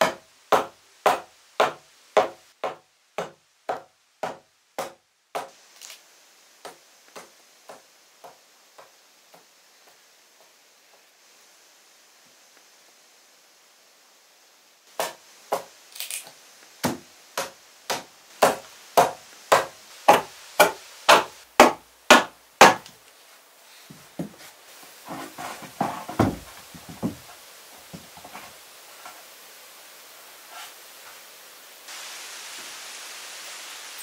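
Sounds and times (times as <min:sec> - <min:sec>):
hammer striking wood: 0:00.0 - 0:05.5, 0:15.0 - 0:15.7, 0:16.8 - 0:22.9, 0:25.1 - 0:27.2
scraping and rustling: 0:23.1 - 0:29.3, 0:30.4 - 0:31.2
dull thump: 0:25.1 - 0:27.2.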